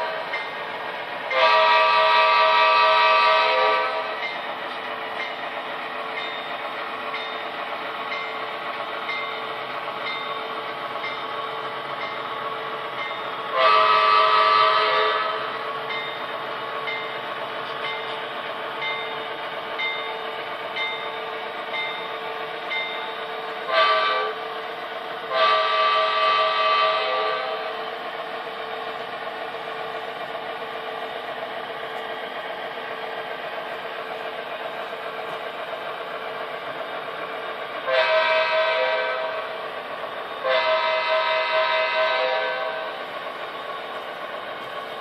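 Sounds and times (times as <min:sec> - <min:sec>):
model locomotive engine sound: 0:00.0 - 0:45.0
locomotive horn blasts: 0:01.3 - 0:04.2, 0:13.5 - 0:15.6, 0:23.6 - 0:24.4, 0:25.2 - 0:27.8, 0:37.8 - 0:39.6, 0:40.4 - 0:43.0.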